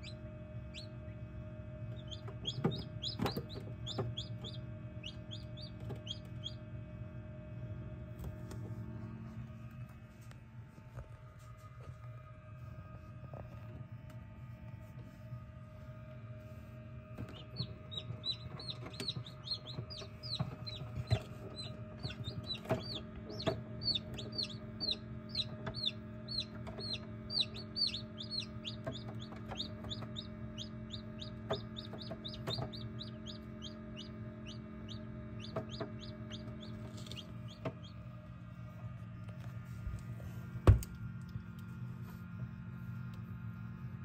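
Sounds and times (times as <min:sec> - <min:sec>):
chicks peeping: 0:00.0 - 0:01.2, 0:01.9 - 0:06.6, 0:17.2 - 0:38.1
incubator hum: 0:00.0 - 0:44.0.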